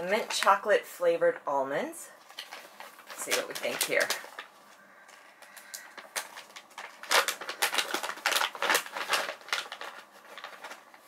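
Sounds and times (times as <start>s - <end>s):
snack packet crinkling: 2.2s - 11.0s.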